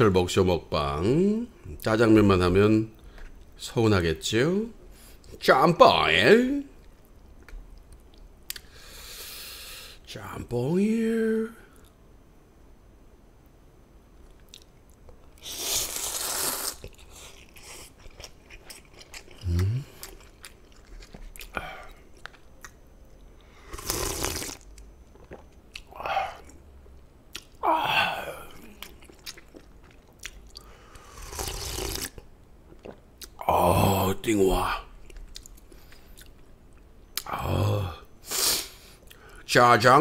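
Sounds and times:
quiet chewing: 14.2 - 27.6, 28.5 - 33.4, 35.0 - 37.3
slurping noodles and broth: 15.4 - 17.0, 23.6 - 24.6, 31.0 - 32.1.

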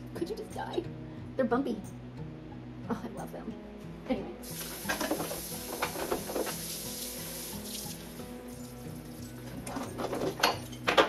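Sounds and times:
faucet running into sink: 4.5 - 8.2
dishes clinking: 4.8 - 6.7, 8.5 - 11.0.

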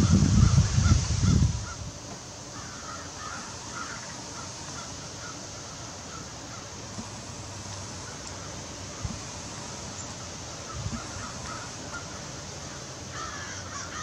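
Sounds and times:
crows cawing: 2.5 - 6.8, 10.2 - 14.0.

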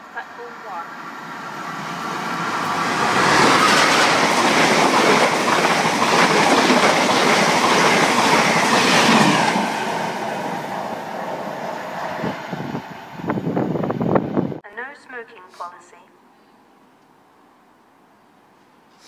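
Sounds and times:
train wheels rushing on rails: 1.0 - 14.6.

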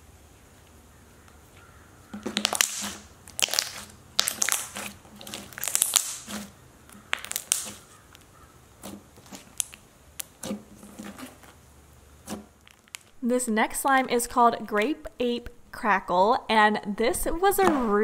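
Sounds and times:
slime squishing and popping: 2.1 - 11.6, 12.2 - 13.2.

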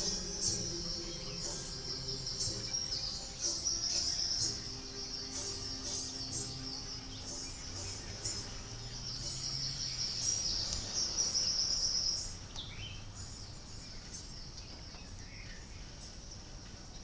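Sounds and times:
insects trilling: 0.0 - 12.5.

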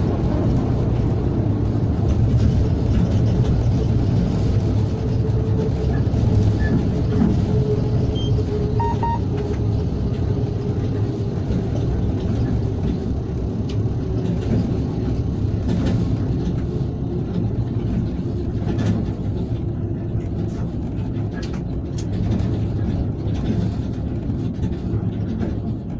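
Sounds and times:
train wheels rumbling on rails: 0.0 - 25.9
short electronic beeps: 8.2 - 9.3.

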